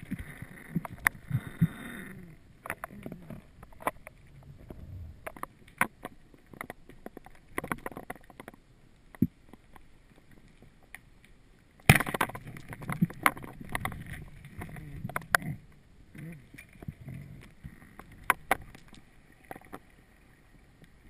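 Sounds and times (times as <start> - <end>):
underwater clicks and knocks: 0.0 - 1.8, 2.6 - 11.0, 11.8 - 15.6, 16.2 - 19.9
low watery rush: 0.0 - 8.2.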